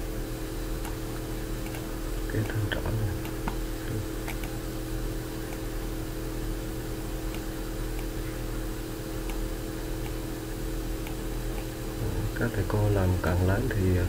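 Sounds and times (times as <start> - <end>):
hum with hiss: 0.0 - 14.0
computer mouse clicks: 0.8 - 1.0, 1.6 - 2.6, 4.2 - 4.6, 5.5 - 5.7, 7.3 - 8.2, 9.2 - 10.2, 11.0 - 11.8.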